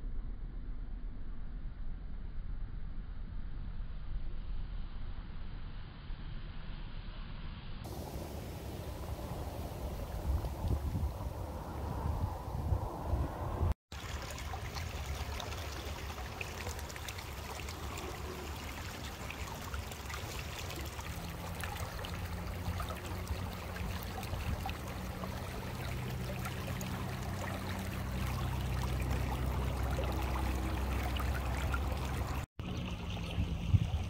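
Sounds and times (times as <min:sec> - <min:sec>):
floodwater rushing down channel: 0:07.9 - 0:12.0, 0:13.9 - 0:34.0.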